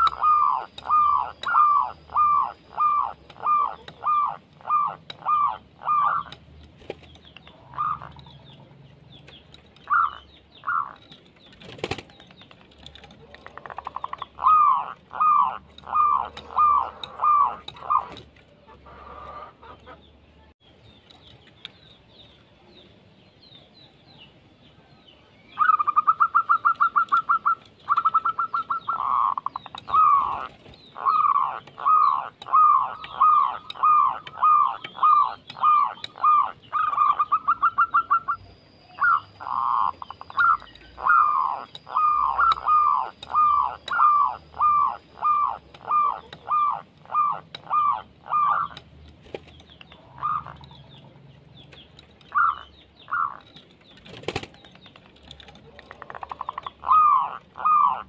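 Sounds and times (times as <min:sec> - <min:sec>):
dove cooing: 0:00.0 - 0:06.4, 0:07.5 - 0:08.6, 0:09.9 - 0:11.0, 0:13.1 - 0:20.0, 0:25.6 - 0:48.8, 0:49.9 - 0:51.0, 0:52.3 - 0:53.4, 0:55.3 - 0:58.0.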